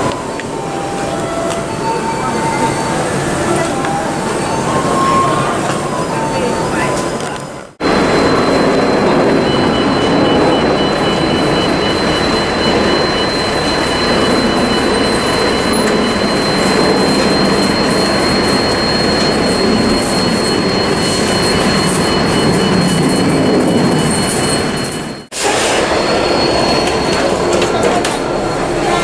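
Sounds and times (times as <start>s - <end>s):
heavy machinery drone: 7.8s - 29.0s
high whine: 7.8s - 29.0s.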